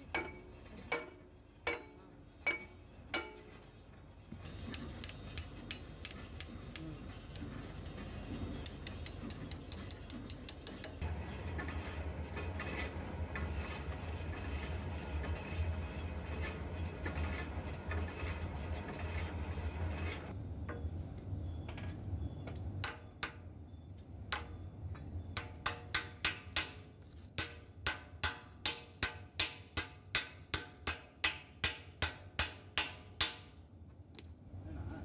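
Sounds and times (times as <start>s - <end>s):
hammer striking metal: 0.0s - 3.6s, 4.4s - 6.9s, 8.6s - 11.0s, 22.8s - 23.5s, 24.3s - 24.7s, 25.4s - 33.6s.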